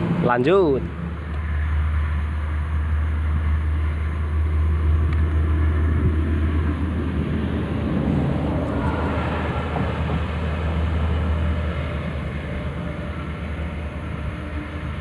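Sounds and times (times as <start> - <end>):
road traffic rumble and hiss: 0.0 - 15.0.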